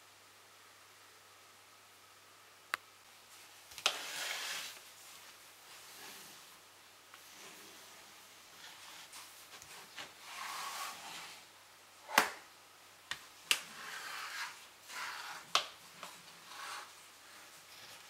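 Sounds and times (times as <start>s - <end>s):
plastic blocks sliding: 3.8s - 4.8s, 8.6s - 11.5s, 13.6s - 18.0s.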